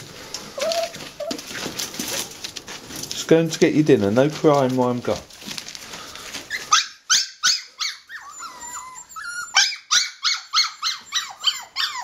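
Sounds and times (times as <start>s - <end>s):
puppies yelping and whining: 0.1s - 2.5s, 6.2s - 12.0s.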